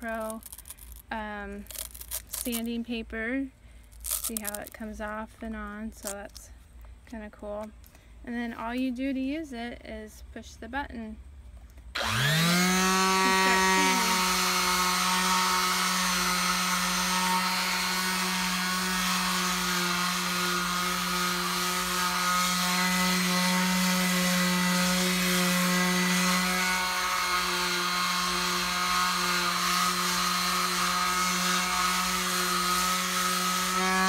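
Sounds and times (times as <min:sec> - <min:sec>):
sander pad on wood: 0:11.9 - 0:34.0
electric sander running: 0:12.0 - 0:34.0.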